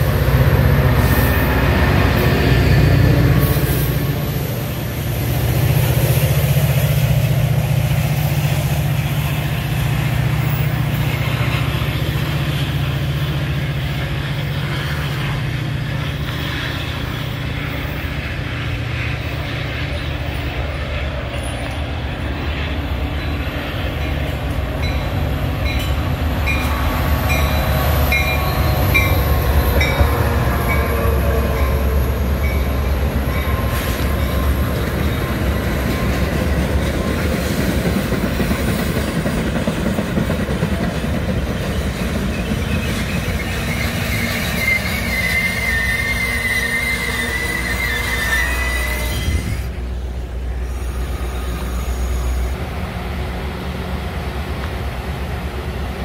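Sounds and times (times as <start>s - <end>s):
diesel locomotive engine hum: 0.0s - 56.0s
wheel squeal: 42.2s - 49.8s, 50.6s - 52.6s.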